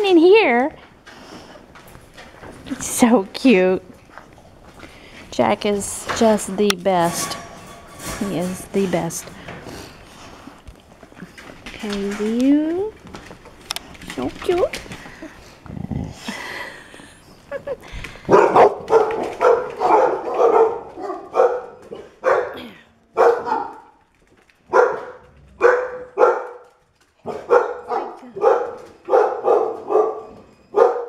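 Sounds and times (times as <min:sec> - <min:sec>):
dogs barking: 0:18.2 - 0:24.0, 0:24.7 - 0:31.0.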